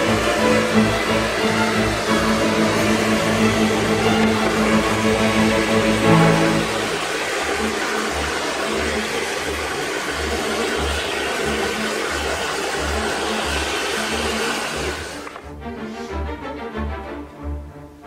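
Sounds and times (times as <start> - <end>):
blowtorch flame hissing: 0.1 - 15.4.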